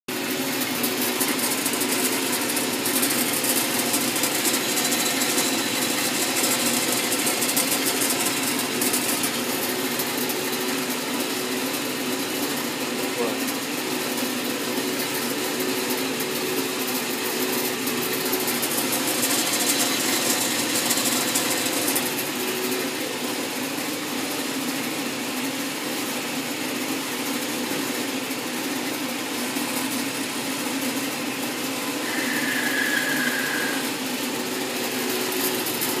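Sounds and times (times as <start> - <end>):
band saw cutting steel: 1.2 - 10.2, 18.4 - 22.3, 31.9 - 36.0
high whine: 32.0 - 34.2.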